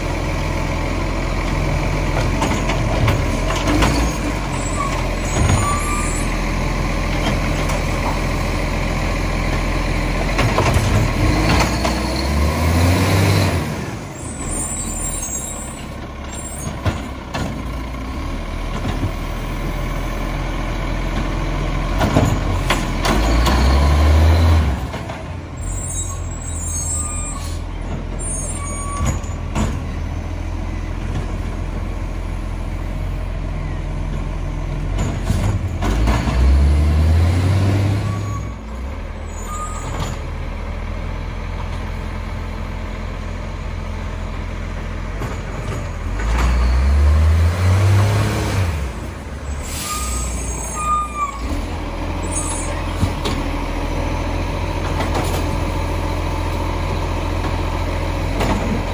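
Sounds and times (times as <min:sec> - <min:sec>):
diesel engine idling and revving: 0:00.0 - 0:58.9
air brake hisses: 0:49.5 - 0:50.8.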